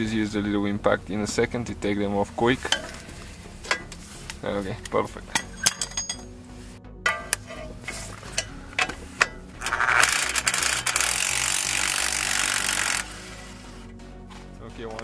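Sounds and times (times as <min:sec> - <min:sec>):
metal clicks and knocks: 0:04.8 - 0:06.3, 0:07.1 - 0:09.5
impact wrench hammering: 0:07.1 - 0:13.2.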